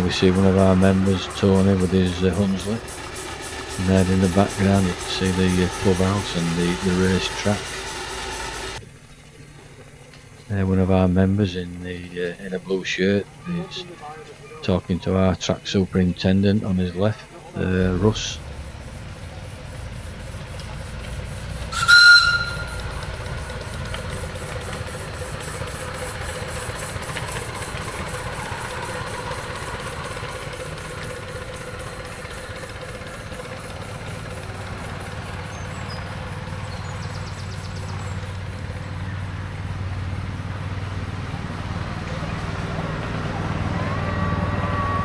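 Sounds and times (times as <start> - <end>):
steam locomotive whistle blast: 0.0 - 8.8, 21.6 - 23.7, 43.4 - 45.0
steam engine hissing and running: 0.0 - 45.0.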